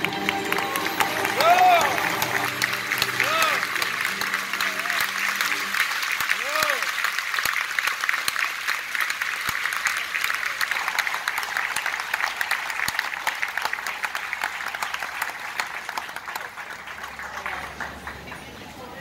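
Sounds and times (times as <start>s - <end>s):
audience applauding: 0.0s - 19.0s.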